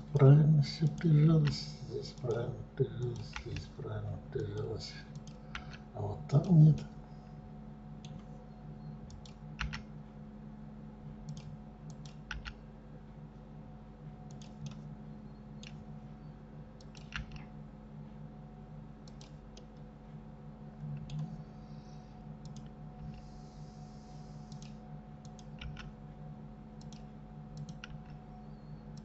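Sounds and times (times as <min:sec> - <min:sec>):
steady low hum: 0:00.0 - 0:29.0
mouse and keyboard clicks: 0:11.3 - 0:12.6, 0:16.8 - 0:17.5, 0:24.5 - 0:25.9, 0:26.8 - 0:28.2.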